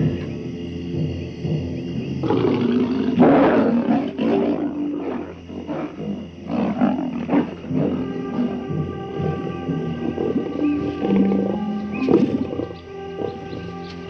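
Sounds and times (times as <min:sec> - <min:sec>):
lion roaring: 0:00.0 - 0:14.0
lion grunts: 0:01.0 - 0:13.8.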